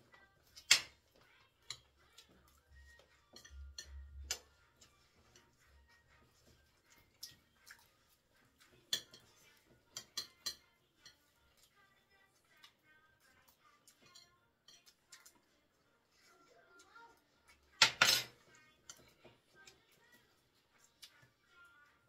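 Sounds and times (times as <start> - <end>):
cutlery scraping ceramic plates: 2.8 - 7.9, 8.7 - 11.2, 17.8 - 19.3.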